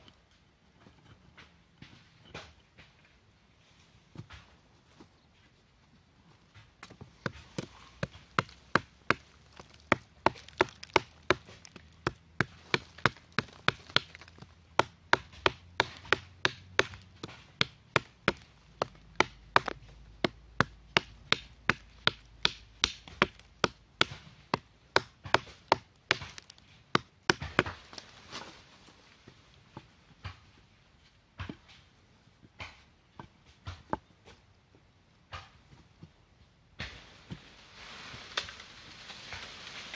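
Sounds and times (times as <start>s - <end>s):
machete chopping wooden branch: 6.9s - 28.5s.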